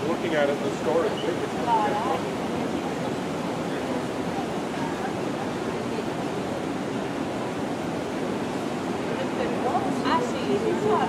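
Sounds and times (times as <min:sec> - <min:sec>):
city plaza din: 0:00.0 - 0:11.0
faint chatter of passers-by: 0:00.0 - 0:11.0.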